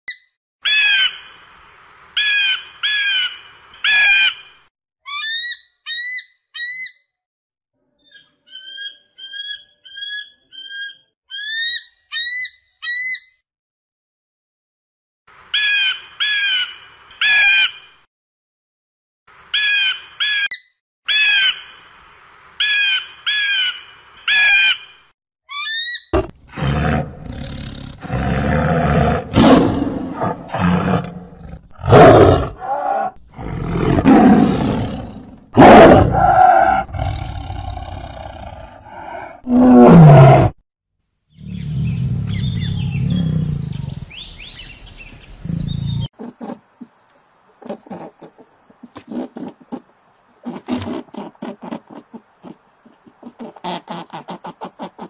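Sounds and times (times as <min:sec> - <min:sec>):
eagle shrill calls: 0:05.0 - 0:07.0, 0:08.0 - 0:13.3, 0:25.5 - 0:26.1
tiger roaring: 0:26.2 - 0:40.6, 0:41.4 - 0:44.0.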